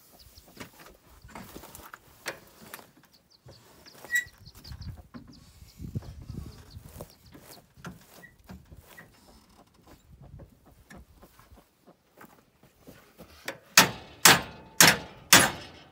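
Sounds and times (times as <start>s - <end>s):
high bird chirps: 2.8s - 8.4s.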